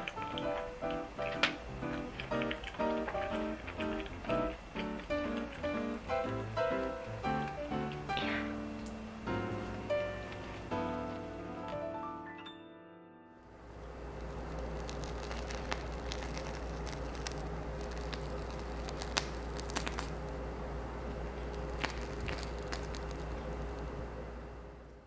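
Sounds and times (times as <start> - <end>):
icing squishing from piping bag: 0.0 - 8.4, 13.9 - 20.5, 21.1 - 24.0
steady low hum: 0.0 - 11.9, 13.5 - 25.0
plastic bag crinkles and clicks: 14.2 - 20.2, 21.5 - 23.9.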